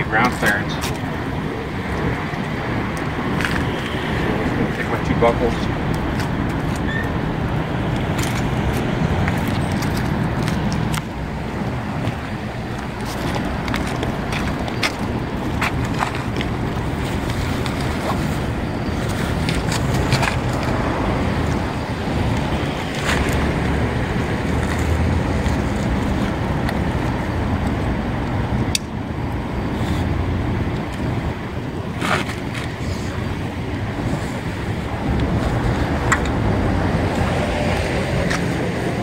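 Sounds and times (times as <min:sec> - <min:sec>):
wind rumble on microphone: 0:00.0 - 0:39.0
clicks of straps and buckles: 0:07.9 - 0:11.2, 0:12.0 - 0:18.4, 0:19.0 - 0:20.8, 0:31.9 - 0:32.8, 0:35.1 - 0:36.4.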